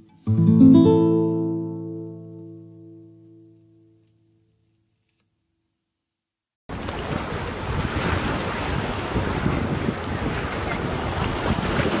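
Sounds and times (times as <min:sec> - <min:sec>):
sea waves washing: 0:06.7 - 0:12.0
wind buffeting microphone: 0:06.7 - 0:12.0.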